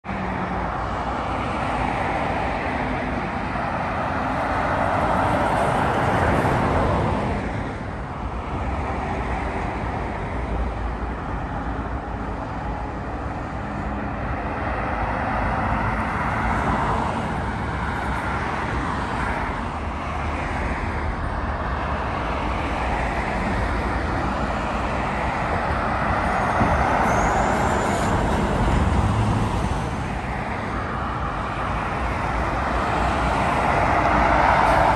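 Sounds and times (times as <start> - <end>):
traffic passing: 0.0 - 34.9
brief high squeal: 26.9 - 28.2.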